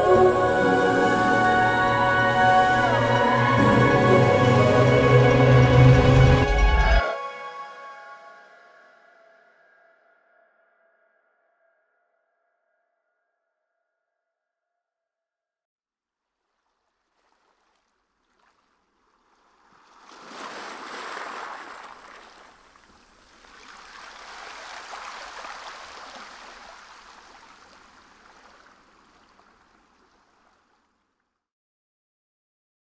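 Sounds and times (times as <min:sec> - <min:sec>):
sea water rushing and churning: 0:00.0 - 0:07.0, 0:16.5 - 0:31.0.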